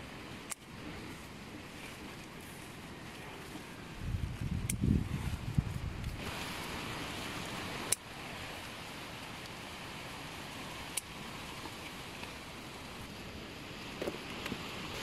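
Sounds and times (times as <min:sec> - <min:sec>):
leaves rustling: 0:00.0 - 0:15.0
strong wind rushing: 0:04.0 - 0:06.4.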